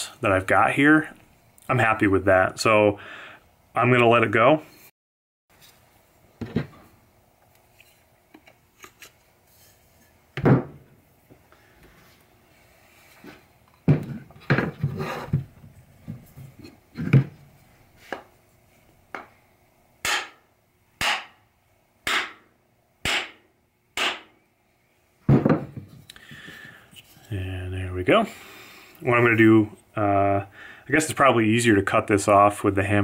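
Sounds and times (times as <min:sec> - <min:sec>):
sharp hammer strikes: 0:20.0 - 0:20.4, 0:21.0 - 0:21.4, 0:22.0 - 0:22.4, 0:23.0 - 0:23.4, 0:24.0 - 0:24.4
heavy wooden knocks: 0:25.3 - 0:25.9.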